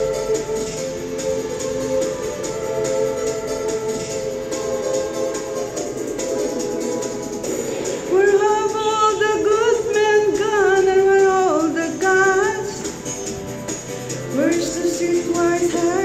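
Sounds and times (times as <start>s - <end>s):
recorded backing music: 0.0s - 16.0s
woman singing into microphone: 8.1s - 12.9s, 14.3s - 16.0s.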